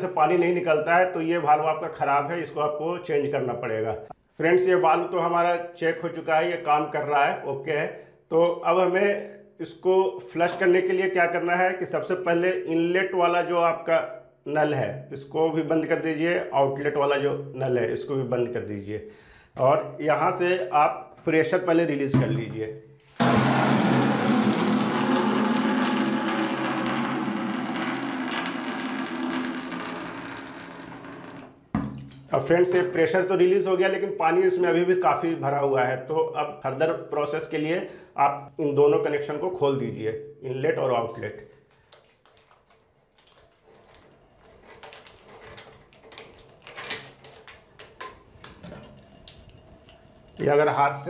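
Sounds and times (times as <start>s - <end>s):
water gushing from relief valve: 23.1s - 31.6s
metal hose nuts clicking and scraping: 43.3s - 50.4s.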